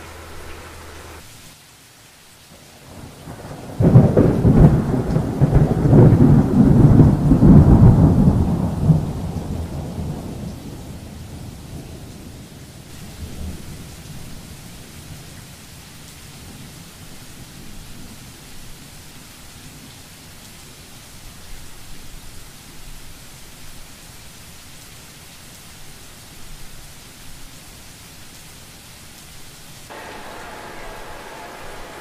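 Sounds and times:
steady rain: 0.0 - 32.0
thunder crack and rumble: 2.9 - 11.4.

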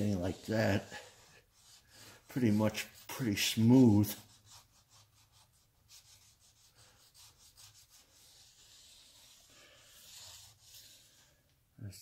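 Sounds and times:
fingertips rubbing oiled metal: 0.0 - 4.9.

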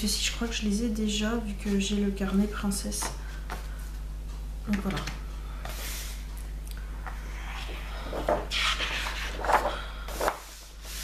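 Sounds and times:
low electrical hum: 0.0 - 11.0
paper rustling: 7.5 - 11.0.

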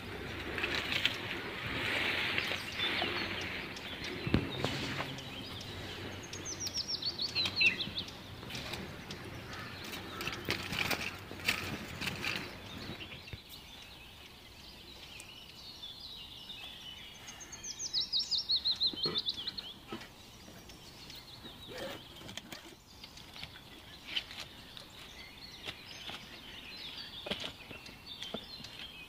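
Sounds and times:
rustles and clicks of handling: 0.2 - 13.6, 19.8 - 29.0.

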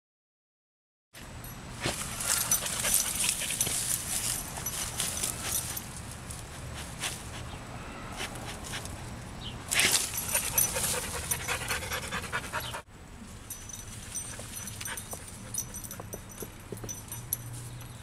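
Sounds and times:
dog panting: 2.2 - 3.7, 9.8 - 12.9.

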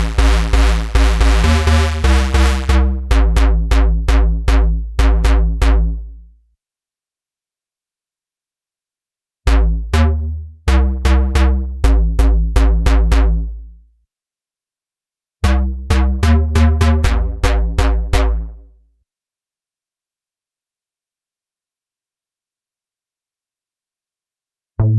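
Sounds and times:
synth bass phrases: 0.0 - 6.2, 9.5 - 13.7, 15.4 - 18.6.

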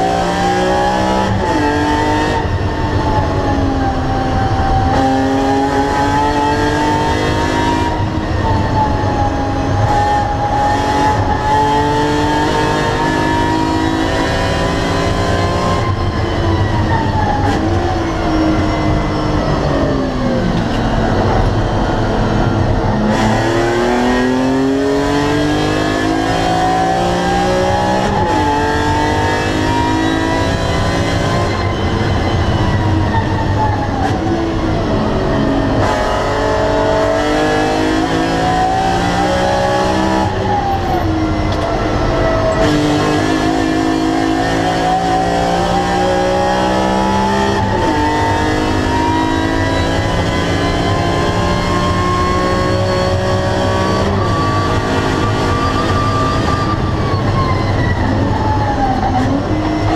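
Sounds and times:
car engine revving in cabin: 17.4 - 33.0, 34.0 - 57.4.

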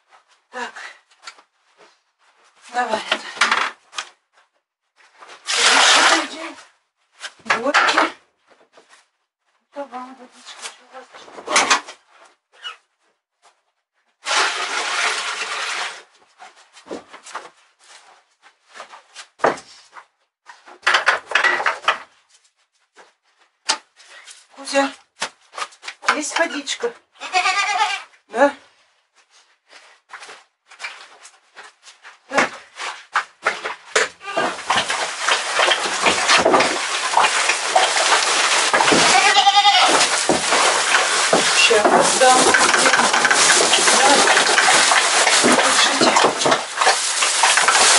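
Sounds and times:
feed pouring into trough: 14.2 - 16.1, 34.4 - 47.9
goats bleating: 27.2 - 28.0, 38.9 - 40.1
continuous rustling: 29.1 - 47.9
bucket knocking against wooden boards: 33.4 - 47.9.

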